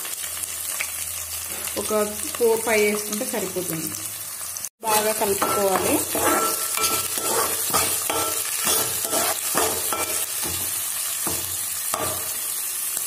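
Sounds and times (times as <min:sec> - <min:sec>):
onions sizzling in hot oil: 0:00.0 - 0:13.0
spoon scraping a pan: 0:05.3 - 0:12.5.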